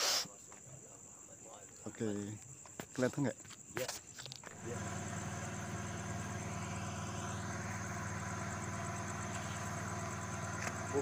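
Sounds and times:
faint insects chirping: 0.0 - 11.0
engine idling: 4.5 - 11.0.

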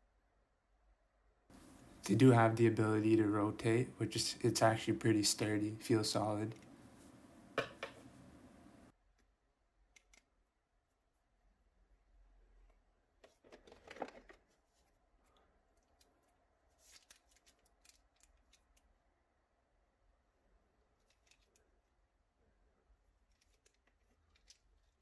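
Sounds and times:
rustling in hands: 13.2 - 18.9.

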